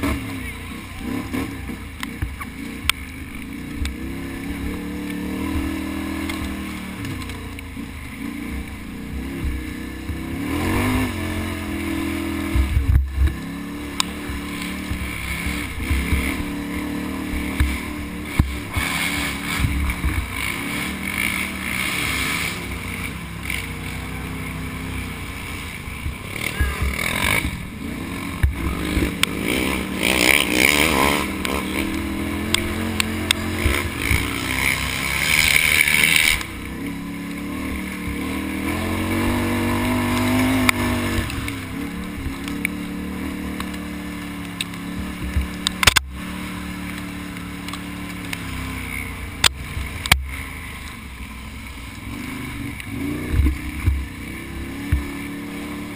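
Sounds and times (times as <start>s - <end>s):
atv engine revving: 0.0s - 55.9s.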